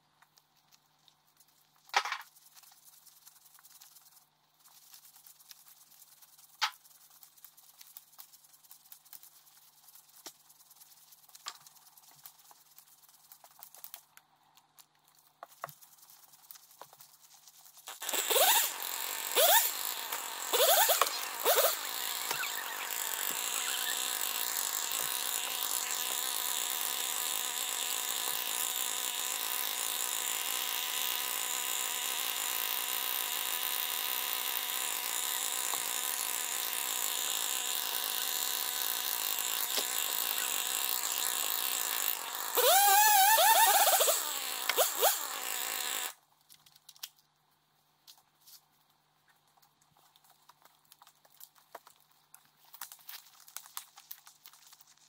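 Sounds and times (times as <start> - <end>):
chainsaw running: 17.9 - 46.2.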